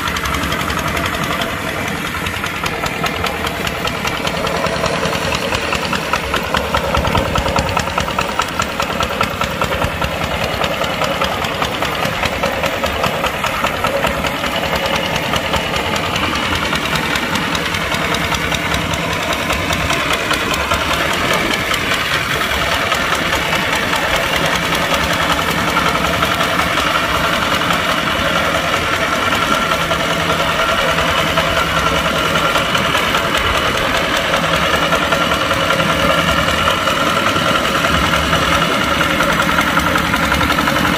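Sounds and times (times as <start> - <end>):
diesel tractor engine running: 0.0 - 40.9.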